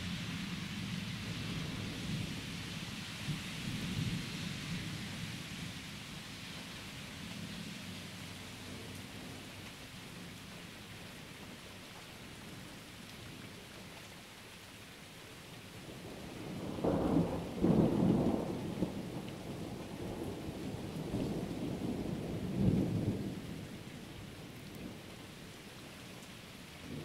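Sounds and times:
steady rain falling: 0.0s - 27.0s
thunder rumbling and crackling: 16.1s - 25.0s.

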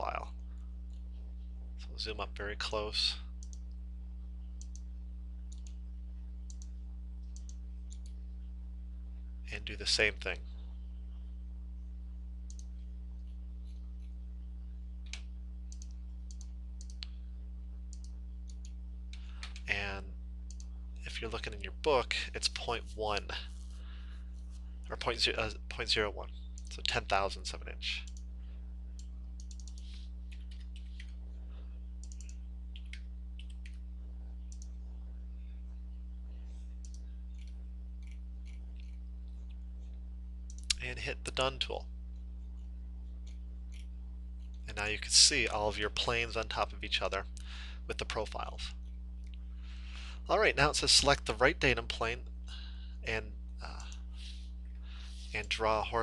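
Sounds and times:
low electrical hum: 0.0s - 56.0s
computer mouse clicks: 3.4s - 3.8s, 5.5s - 5.8s, 6.5s - 8.2s, 12.5s - 12.7s, 15.1s - 17.2s, 29.0s - 31.2s, 32.0s - 33.8s, 34.5s - 34.8s, 36.8s - 39.0s, 40.5s - 40.8s.

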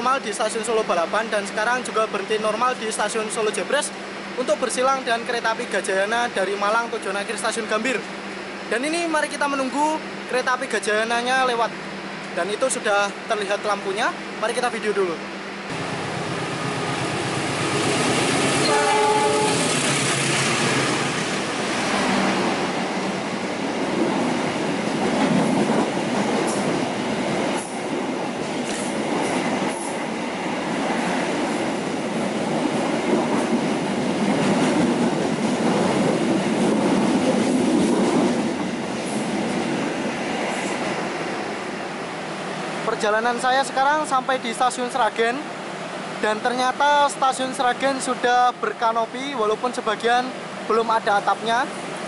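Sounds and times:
train coaches rushing by: 15.7s - 43.0s
train horn: 18.0s - 19.8s.

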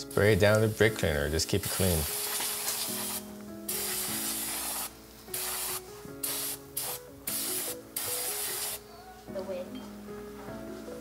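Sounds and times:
aerosol spray hissing bursts: 1.6s - 8.8s.

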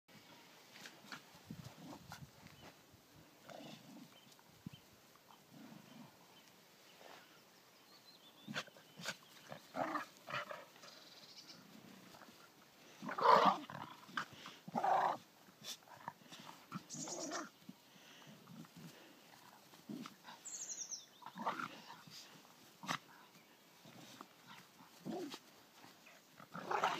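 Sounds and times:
dogs growling: 8.5s - 11.0s, 11.8s - 15.2s, 21.2s - 22.2s, 23.8s - 26.9s.

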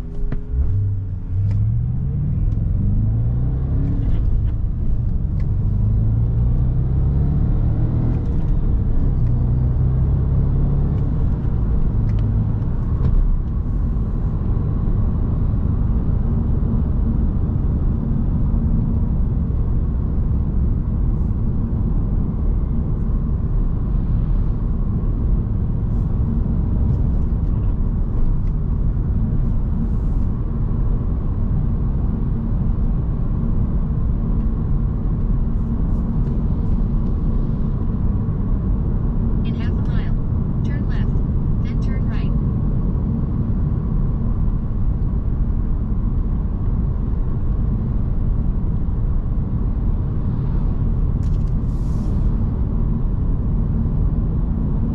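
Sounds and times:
car engine accelerating through gears: 0.0s - 20.5s.

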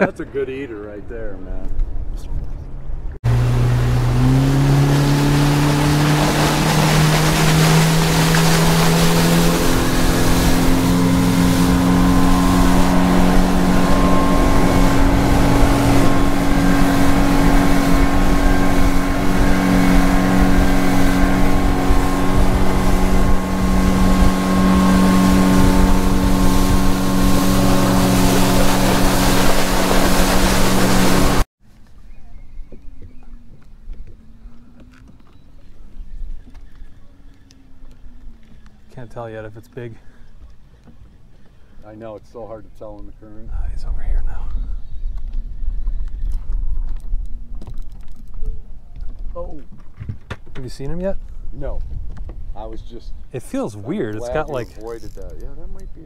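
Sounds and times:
wind: 0.0s - 56.0s
outboard motor running: 3.2s - 31.5s, 53.3s - 55.8s
water rushing past hull: 3.2s - 31.5s.

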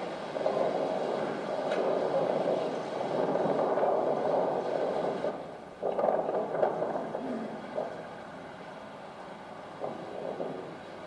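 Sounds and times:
film soundtrack rumbling over loudspeakers: 0.0s - 11.0s.

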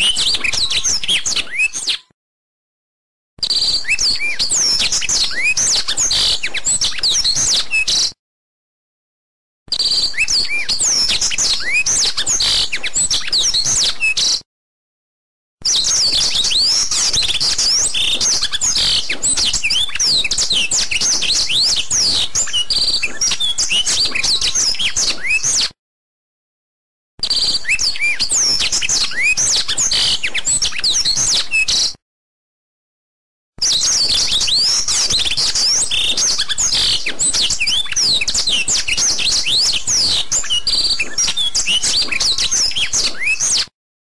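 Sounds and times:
small birds chirping: 9.8s - 14.4s, 33.6s - 43.6s.

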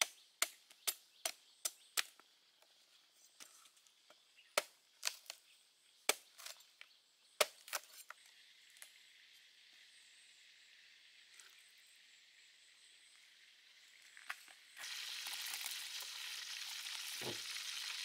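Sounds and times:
knife chopping coconut husk: 0.0s - 2.2s.

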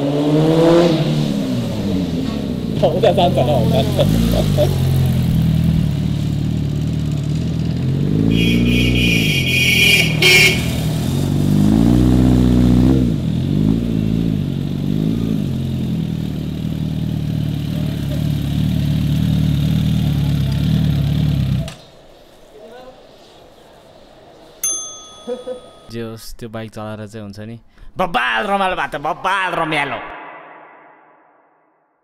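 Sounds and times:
motorcycle engine revving: 0.0s - 22.0s
high steady tone: 24.6s - 26.0s.

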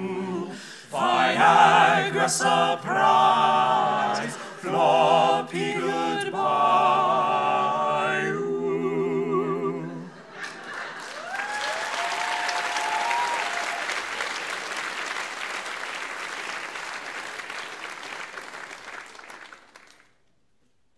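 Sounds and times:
male voices singing a chord: 0.0s - 10.2s
audience clapping and cheering: 10.2s - 20.3s
whoops: 11.1s - 14.0s.

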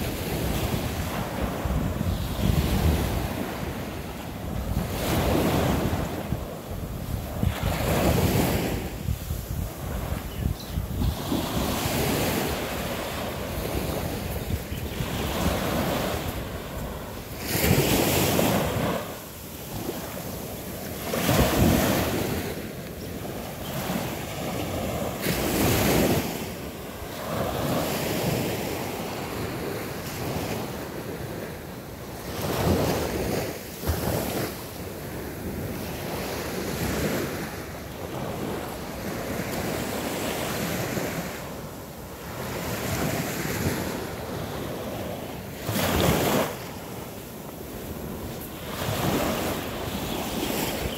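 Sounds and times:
wind buffeting microphone: 0.0s - 26.4s
small waves breaking on shore: 0.0s - 50.9s.

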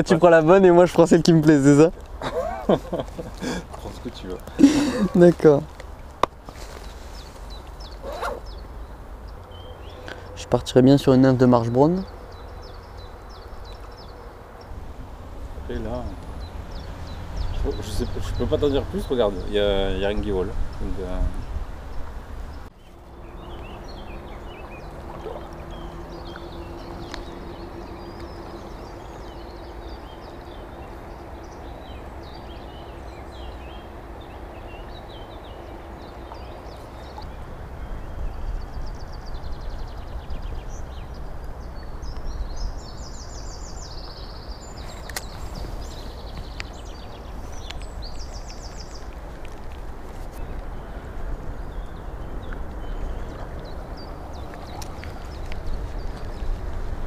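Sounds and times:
small birds chirping: 0.0s - 57.0s
river water running over stones: 21.8s - 31.4s, 40.8s - 57.0s.

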